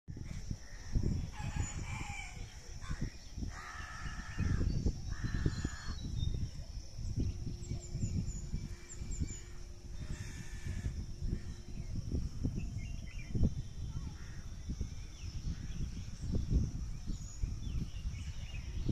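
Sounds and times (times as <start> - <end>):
wind buffeting microphone: 0.1 - 18.9
harsh bird calls: 0.8 - 18.9.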